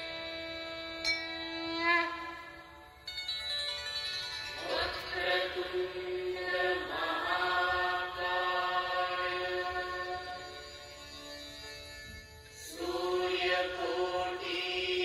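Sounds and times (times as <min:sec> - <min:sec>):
chanting voices music: 0:04.6 - 0:11.0, 0:12.6 - 0:15.0.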